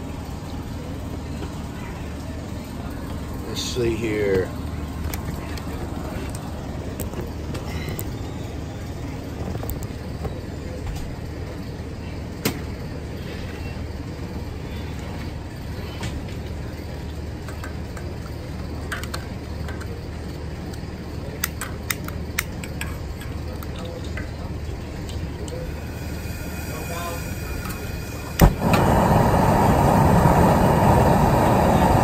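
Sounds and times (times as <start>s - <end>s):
gas burner rushing: 25.4s - 32.0s.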